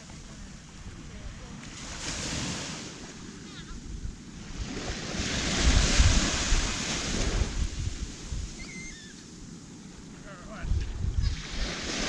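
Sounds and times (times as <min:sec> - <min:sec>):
wave washing up a beach: 0:00.0 - 0:12.0
wind rumble on microphone: 0:00.0 - 0:12.0.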